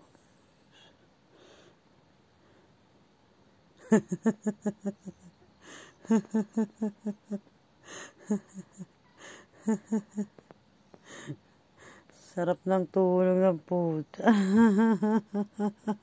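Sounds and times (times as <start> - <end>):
woman laughing: 3.8 - 5.4, 6.0 - 10.5, 14.2 - 16.0
gasping breaths: 9.2 - 9.6.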